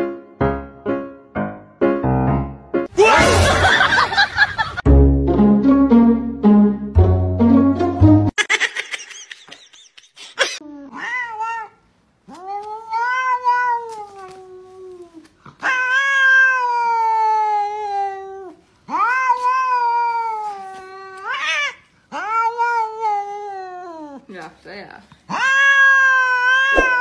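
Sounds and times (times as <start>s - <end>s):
cat yowling: 10.9s - 24.3s, 25.3s - 27.0s.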